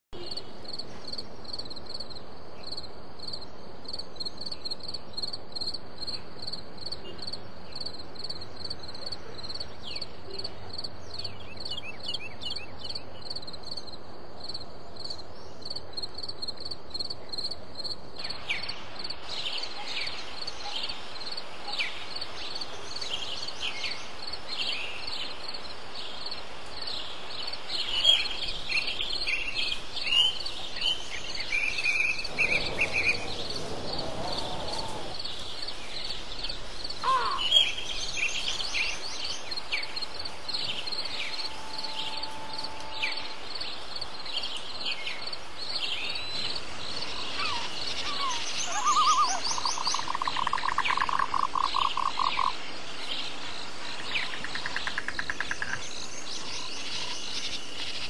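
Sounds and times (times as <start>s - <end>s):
pulsing insect chorus: 12.5s - 58.0s
short falling bird calls: 31.8s - 37.8s, 47.2s - 50.4s.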